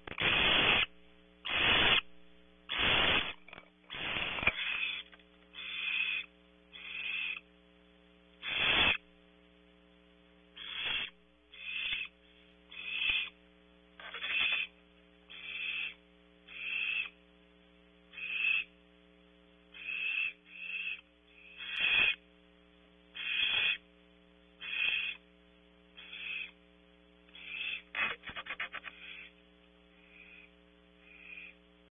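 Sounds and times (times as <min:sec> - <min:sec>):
owl rasping screech-hisses: 0:00.2 - 0:00.9, 0:01.5 - 0:02.0, 0:02.7 - 0:07.4, 0:08.4 - 0:09.0, 0:10.6 - 0:13.4, 0:14.0 - 0:14.7, 0:15.3 - 0:17.2, 0:18.1 - 0:18.7, 0:19.7 - 0:22.2, 0:23.2 - 0:23.8, 0:24.6 - 0:25.2, 0:26.0 - 0:26.6, 0:27.3 - 0:29.4, 0:30.0 - 0:31.6.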